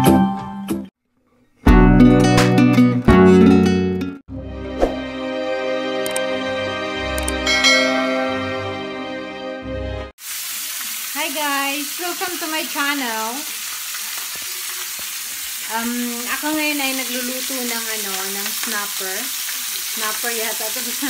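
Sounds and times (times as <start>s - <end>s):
intro music: 4.3s - 10.1s
fish sizzling in oil: 10.2s - 21.0s
woman talking: 11.2s - 13.5s, 15.7s - 19.3s, 20.0s - 21.0s.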